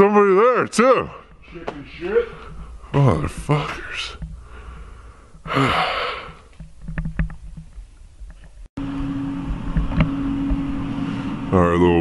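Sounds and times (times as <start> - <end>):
heat sealer humming: 8.8 - 12.0.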